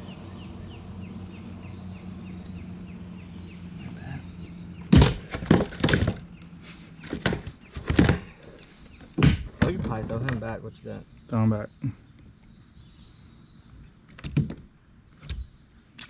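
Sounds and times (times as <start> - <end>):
sharp loud knocks and clatters: 4.9 - 6.3, 7.1 - 8.4.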